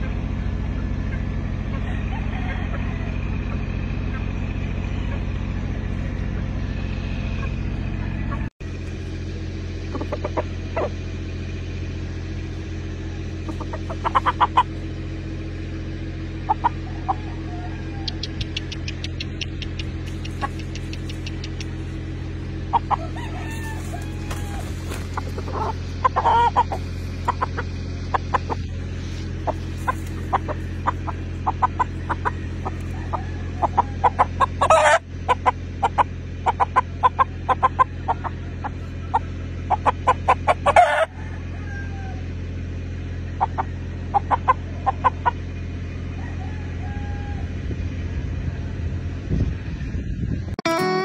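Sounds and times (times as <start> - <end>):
rooster clucking: 0.0 - 8.6, 9.8 - 11.3, 12.9 - 42.3, 43.2 - 47.6
steady low hum: 0.0 - 51.0
sharp clicks: 18.0 - 21.8.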